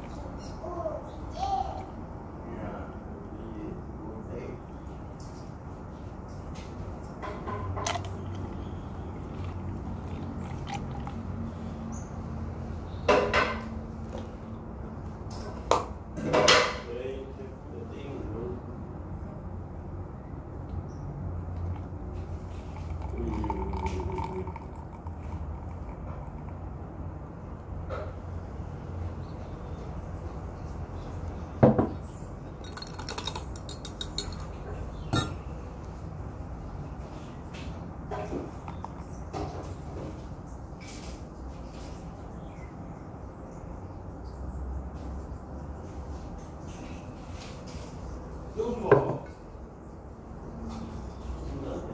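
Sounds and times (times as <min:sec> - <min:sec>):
milk gurgling from a carton: 0:08.0 - 0:11.4, 0:22.6 - 0:26.5
glass and dishware clinking: 0:22.8 - 0:26.5, 0:32.6 - 0:35.5.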